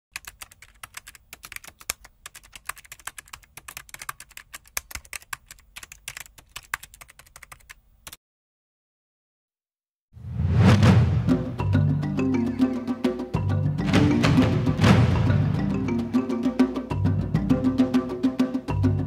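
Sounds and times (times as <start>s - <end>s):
keyboard typing clicks: 0.2s - 8.2s.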